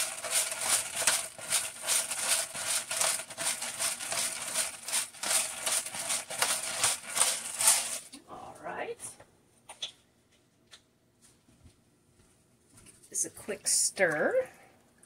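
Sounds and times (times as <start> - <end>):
pepper mill grinding: 0.0 - 8.2.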